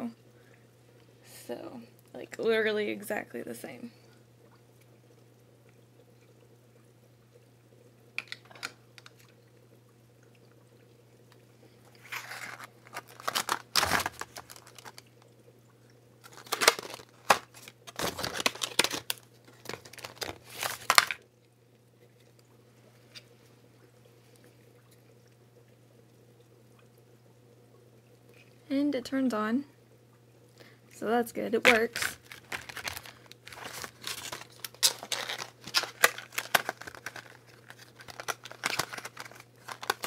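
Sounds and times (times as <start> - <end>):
faint low hum: 0.0 - 40.0
plastic packaging crinkling: 8.2 - 9.2, 11.9 - 15.3, 16.2 - 21.2, 31.6 - 40.0.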